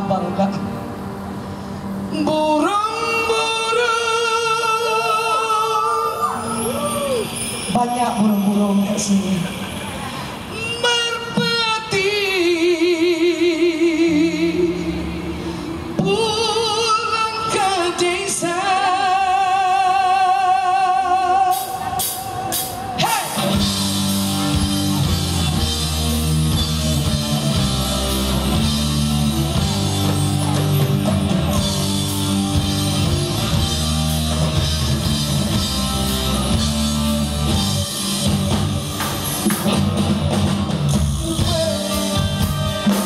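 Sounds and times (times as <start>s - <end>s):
woman singing with vibrato: 2.1s - 9.5s, 10.5s - 22.8s
band with drums bass and guitar: 21.1s - 43.0s.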